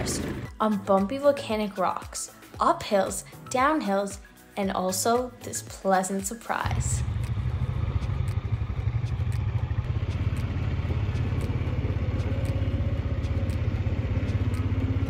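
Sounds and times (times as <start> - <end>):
quad bike engine running: 0.0 - 0.5, 6.7 - 15.0.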